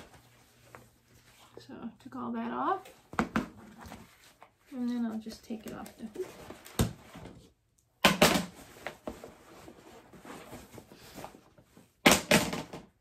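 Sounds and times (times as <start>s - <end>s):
fabric rustling: 8.6s - 11.8s.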